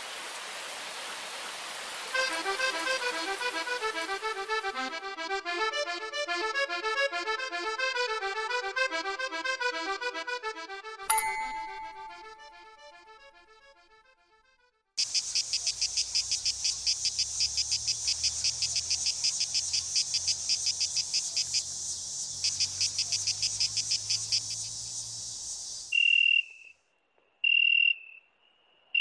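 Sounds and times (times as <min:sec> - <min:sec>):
pulsing insect chirring: 0:15.0 - 0:26.5.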